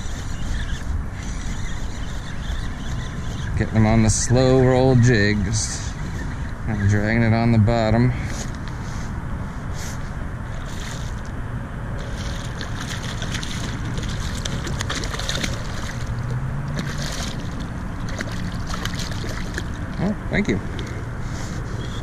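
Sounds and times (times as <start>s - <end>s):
water lapping against hull: 0.0s - 7.5s, 12.0s - 22.0s
wind buffeting microphone: 0.0s - 22.0s.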